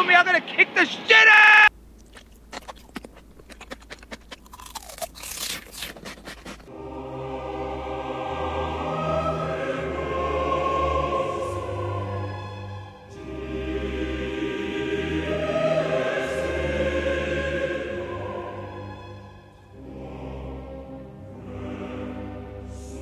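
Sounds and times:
choir singing long held notes: 6.7s - 23.0s.

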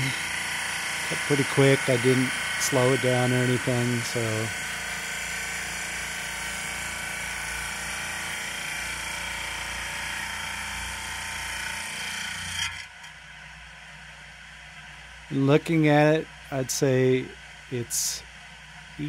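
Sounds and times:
rock saw cutting stone: 0.0s - 12.9s.

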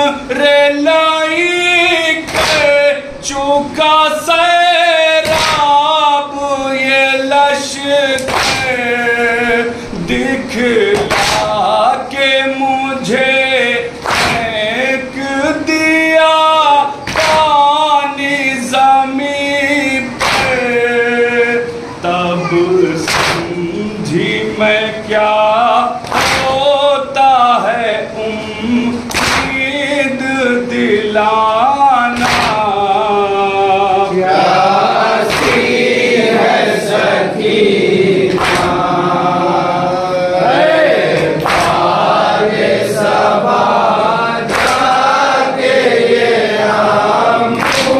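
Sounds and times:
man singing lament: 0.0s - 47.9s
men singing in chorus: 0.0s - 47.9s
hands slapping chests: 2.3s - 2.8s, 5.2s - 5.7s, 8.2s - 8.7s, 11.0s - 11.6s, 14.0s - 14.5s, 17.1s - 17.5s, 20.2s - 20.6s, 23.1s - 23.5s, 26.0s - 26.6s, 29.1s - 29.6s, 32.2s - 32.6s, 35.2s - 35.8s, 38.3s - 38.8s, 41.1s - 41.9s, 44.5s - 45.0s, 47.6s - 47.9s.

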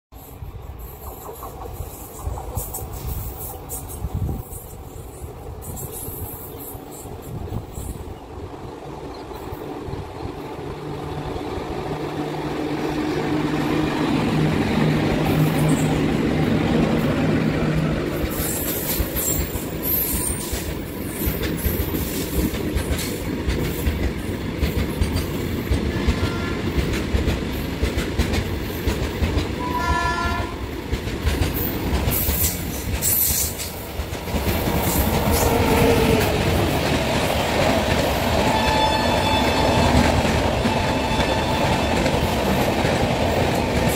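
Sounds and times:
passenger train rushing past: 0.1s - 43.9s
locomotive hum: 0.3s - 21.0s
train wheels clattering over rail joints: 14.0s - 29.6s, 30.8s - 43.9s
train horn: 25.9s - 26.8s, 29.6s - 30.6s, 35.3s - 36.3s, 38.4s - 42.2s.

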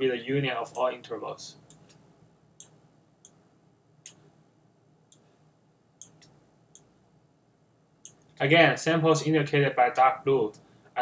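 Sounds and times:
faint computer mouse clicks: 1.7s - 2.0s, 6.0s - 6.9s.

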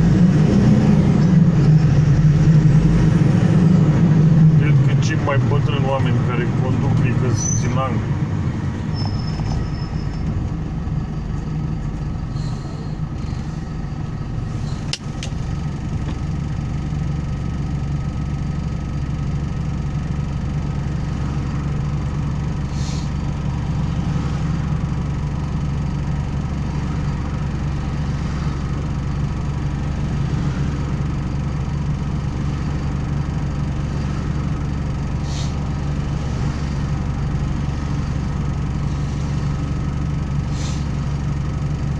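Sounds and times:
truck engine idling: 0.0s - 41.9s.

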